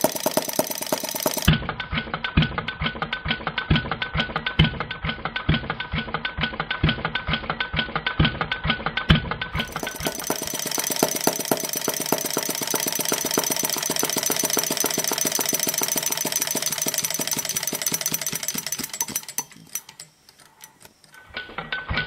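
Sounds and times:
model gas engine running: 0.0s - 1.6s, 9.6s - 20.0s.

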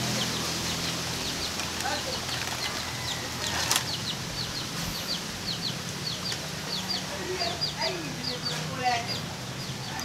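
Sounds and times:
bird chirping: 0.0s - 10.0s.

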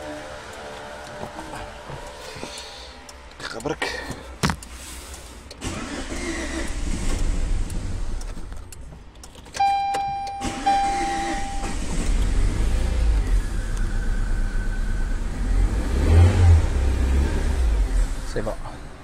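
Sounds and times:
car engine revving: 0.0s - 8.8s, 10.4s - 19.0s
electronic beep: 9.6s - 11.8s.

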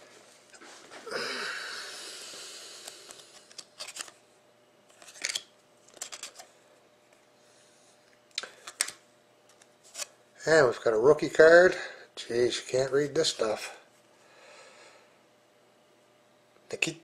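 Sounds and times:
trading cards clicking and scraping: 2.8s - 4.2s, 4.9s - 6.5s.

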